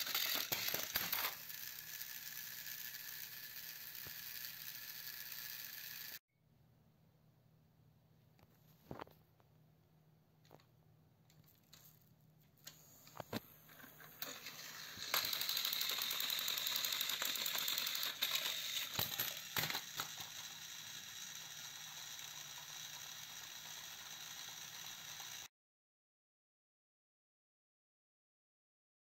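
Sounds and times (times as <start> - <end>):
toy train motors whirring: 0.0 - 6.2, 12.7 - 25.5.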